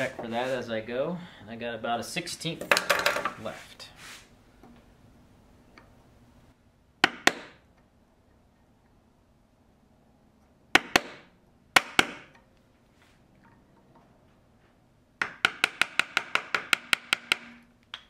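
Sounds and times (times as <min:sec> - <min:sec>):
mallet striking chisel: 0:07.0 - 0:07.6, 0:10.8 - 0:12.4, 0:15.2 - 0:17.6.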